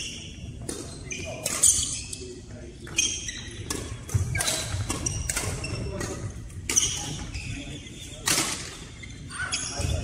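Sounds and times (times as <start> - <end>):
shoes squeaking on wooden floor: 2.8 - 8.2, 8.8 - 10.0.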